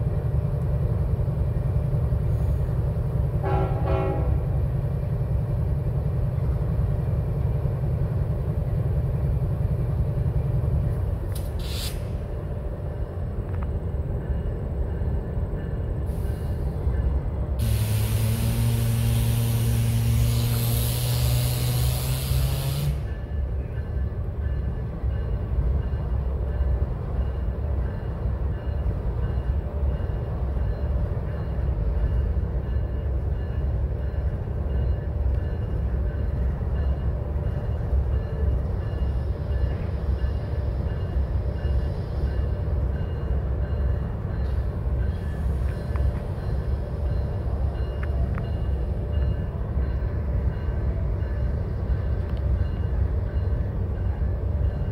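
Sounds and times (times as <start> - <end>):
diesel locomotive rumbling: 0.0 - 54.9
loud hiss of air venting: 11.6 - 12.2, 17.6 - 23.0.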